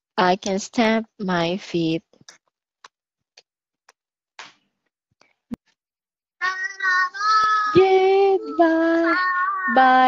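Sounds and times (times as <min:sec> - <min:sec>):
person singing high: 0:06.4 - 0:10.0.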